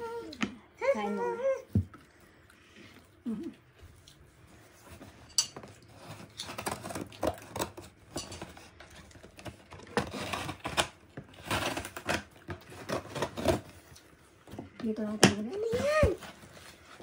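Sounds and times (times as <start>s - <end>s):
scissors slitting packing tape: 9.8s - 13.7s.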